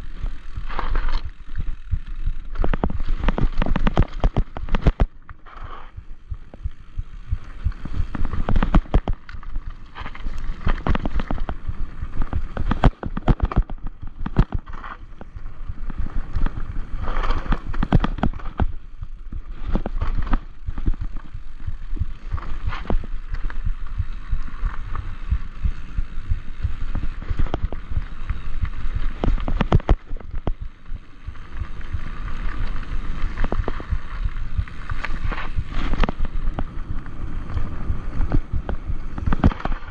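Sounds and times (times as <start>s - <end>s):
bike knocking and rattling: 0.0s - 39.9s
bike tyres rumbling on trail: 0.0s - 39.9s.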